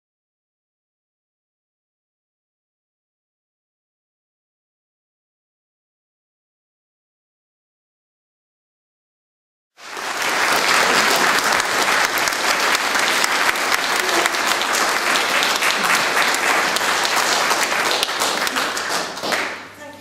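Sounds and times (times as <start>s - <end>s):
audience applauding: 9.8s - 19.9s.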